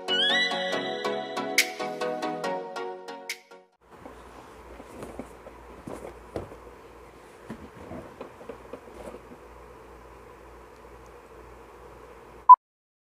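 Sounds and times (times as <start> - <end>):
hands handling cardboard box: 4.1 - 6.6.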